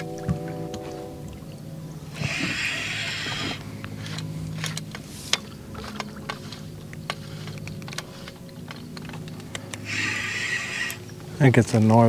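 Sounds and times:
boat motor humming: 0.0s - 12.0s
hissing rush: 2.0s - 11.8s
fishing reel clicking: 2.2s - 11.5s.

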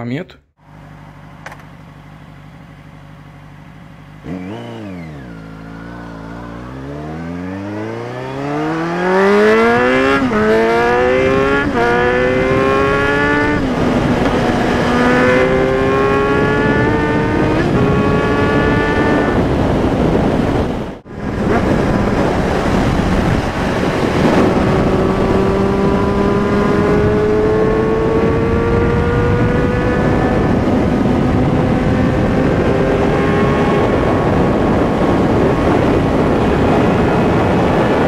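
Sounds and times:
motorcycle engine accelerating: 0.6s - 38.0s.

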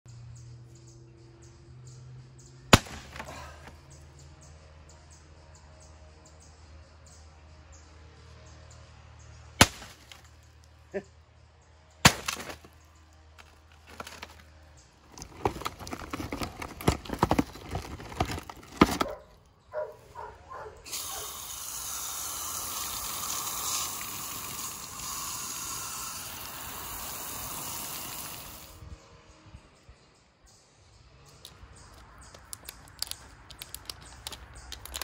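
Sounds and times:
knocks of branch and shingles: 2.7s - 3.8s, 9.6s - 10.5s, 12.0s - 19.3s
hose spraying water: 20.8s - 28.8s.

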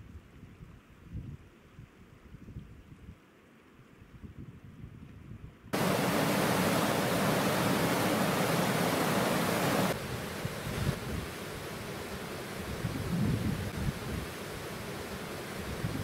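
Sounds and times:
waterfall rushing over rocks: 5.8s - 16.0s.

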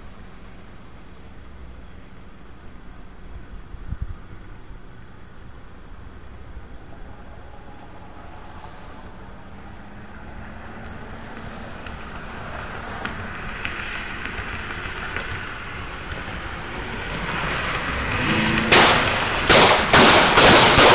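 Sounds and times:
cars approaching fast: 5.0s - 20.9s.

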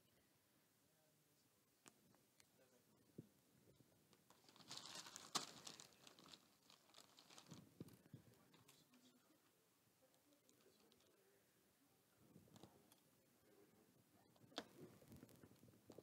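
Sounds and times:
plastic pieces rustling and clicking: 4.3s - 7.6s.

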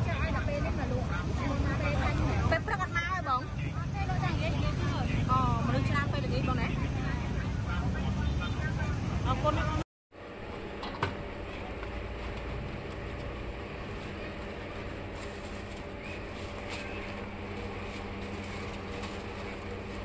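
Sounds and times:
steady low background hum: 10.2s - 20.0s.

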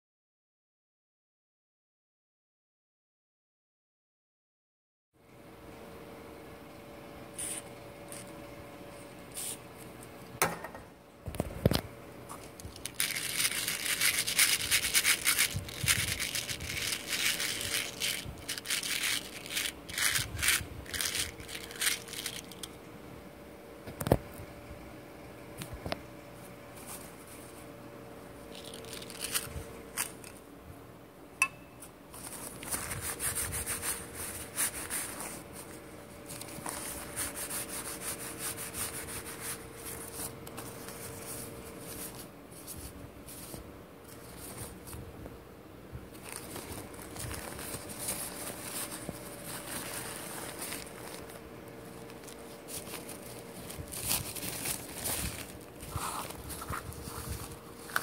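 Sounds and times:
paper towel rustling: 12.3s - 22.7s, 32.1s - 45.0s, 46.1s - 58.0s.

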